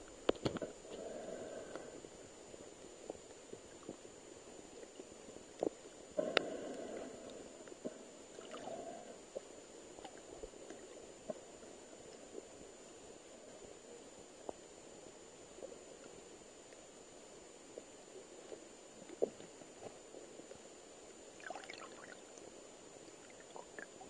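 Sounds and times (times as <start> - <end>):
faint high whine: 0.0 - 24.0
underwater gurgling and sloshing: 0.0 - 24.0.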